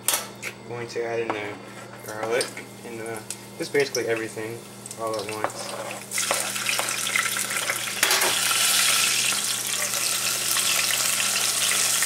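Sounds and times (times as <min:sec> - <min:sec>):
vegetables sizzling in hot oil: 0:05.9 - 0:12.0.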